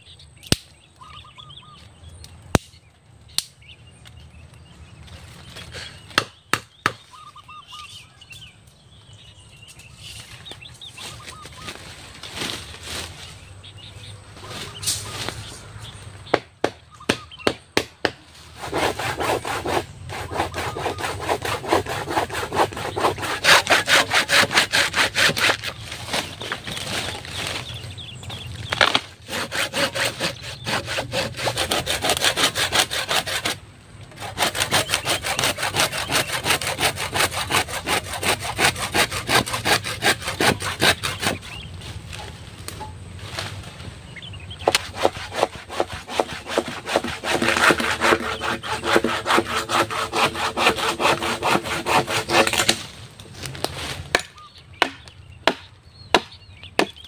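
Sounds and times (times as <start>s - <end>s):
hand saw cutting bamboo: 18.0s - 27.7s, 28.7s - 43.5s, 44.6s - 56.3s
machete striking bamboo: 28.7s - 30.1s, 51.1s - 53.0s, 53.6s - 57.0s.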